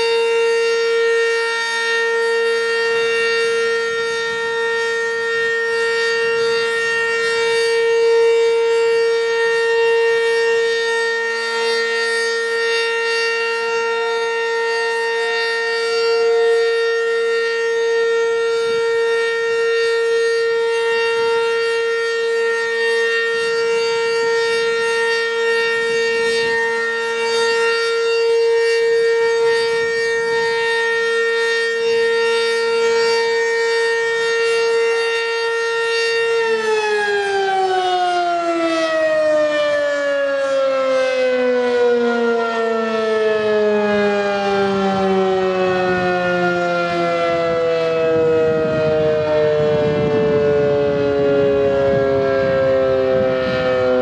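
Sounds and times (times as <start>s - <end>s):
two-tone warning siren: 0.0s - 54.0s.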